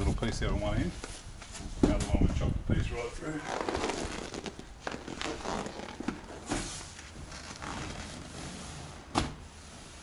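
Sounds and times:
padded panel rustling: 0:03.4 - 0:10.0.

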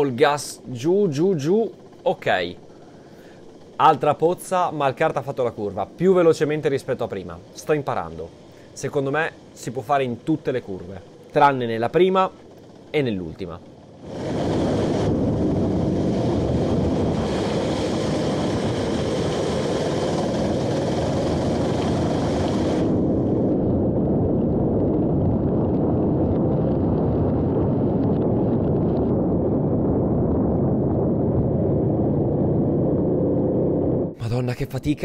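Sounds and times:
go-kart engine: 0:12.0 - 0:23.3
wind noise on microphone: 0:13.8 - 0:34.2.

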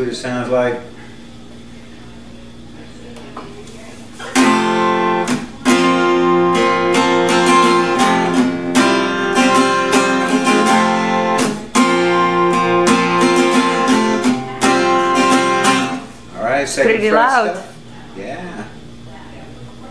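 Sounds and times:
acoustic guitar strummed chords: 0:04.2 - 0:16.4.

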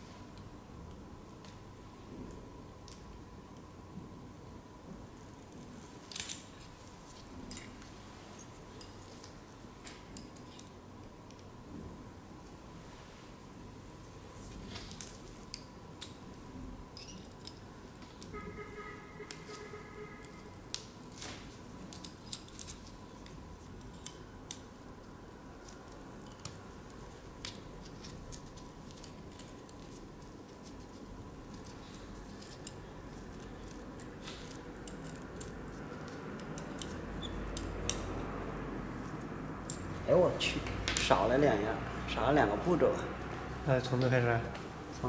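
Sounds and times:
faint steady tone: 0:18.2 - 0:20.8.

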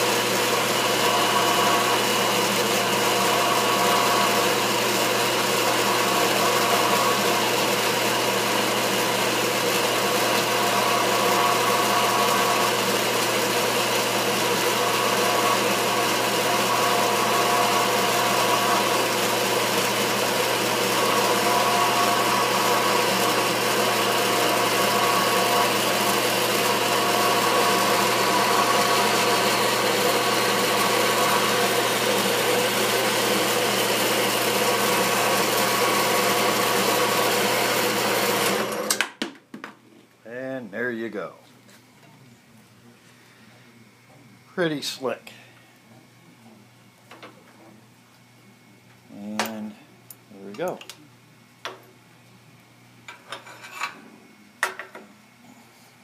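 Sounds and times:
band saw cutting metal: 0:00.0 - 0:39.0.

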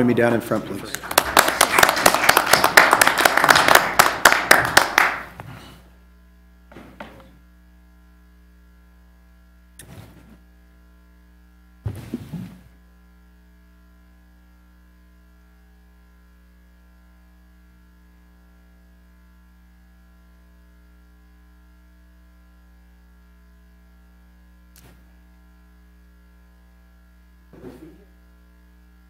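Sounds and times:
electrical hum: 0:00.0 - 0:29.0
short bump: 0:11.8 - 0:12.7.

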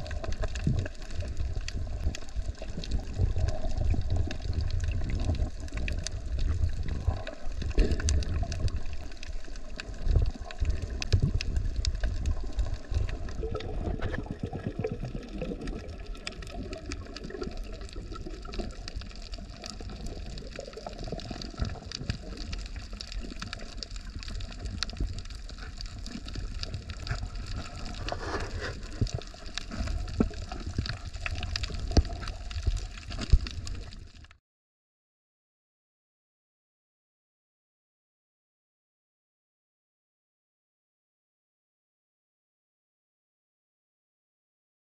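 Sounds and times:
underwater rumble of moving water: 0:00.0 - 0:34.4.

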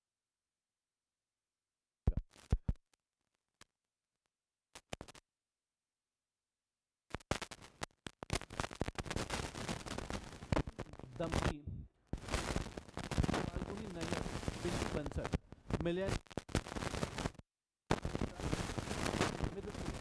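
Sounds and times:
scratchy rustling: 0:12.2 - 0:20.0.

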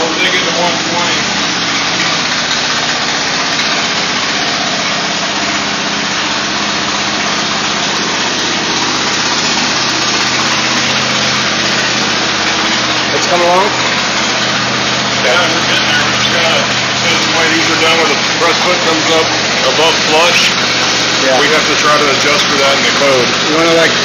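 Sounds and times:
hydraulic power unit hum: 0:00.0 - 0:24.0.

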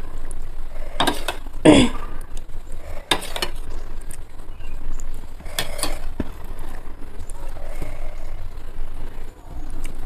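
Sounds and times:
metal spoon scraping a plate: 0:00.9 - 0:01.4, 0:03.0 - 0:03.6, 0:05.5 - 0:06.1.

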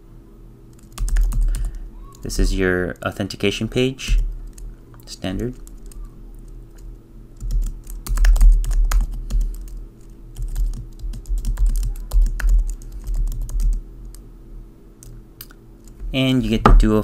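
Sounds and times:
computer keyboard typing: 0:00.7 - 0:02.3, 0:04.1 - 0:04.7, 0:05.4 - 0:14.2.

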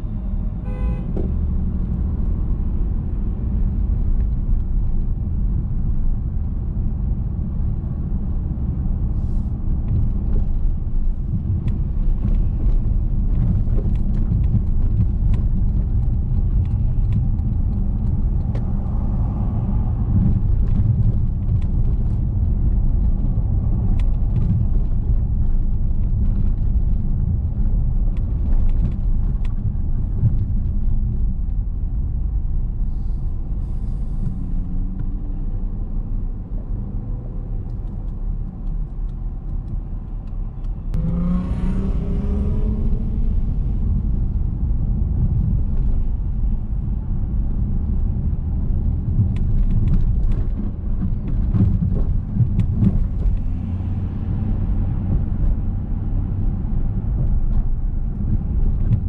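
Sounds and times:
car engine and tyre rumble: 0:00.0 - 0:59.0
engine revving up: 0:41.0 - 0:43.3.

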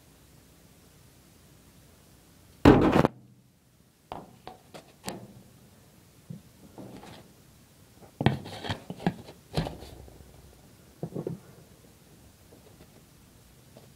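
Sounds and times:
handling knocks and scrapes: 0:08.1 - 0:11.6.

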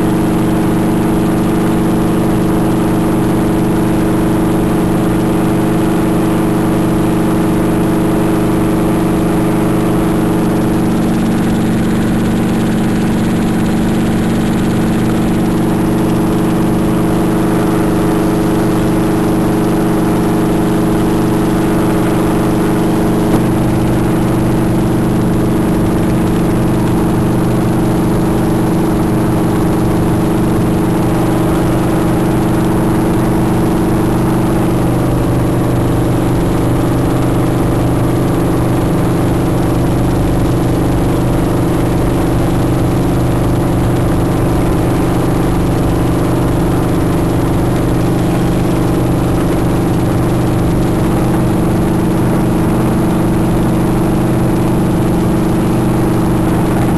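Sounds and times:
helicopter engine and rotor drone: 0:00.0 - 0:56.9.

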